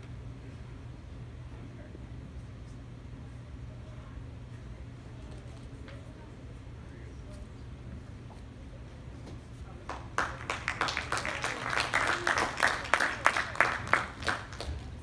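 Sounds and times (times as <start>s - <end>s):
audience applauding: 9.9s - 15.0s.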